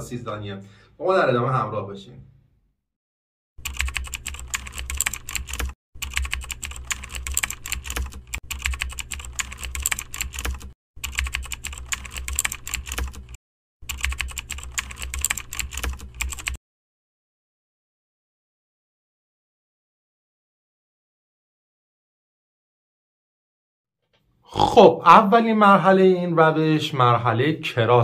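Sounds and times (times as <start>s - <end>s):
rapid keyboard typing: 3.6s - 16.6s.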